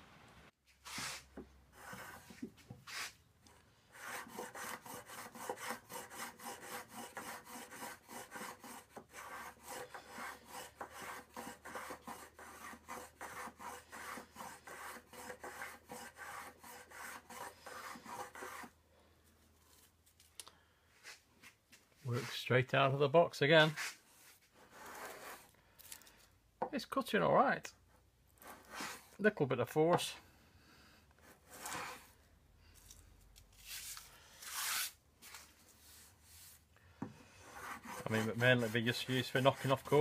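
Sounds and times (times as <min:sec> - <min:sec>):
hand plane shaving wood: 0:01.8 - 0:03.1, 0:03.9 - 0:18.7, 0:37.4 - 0:40.0.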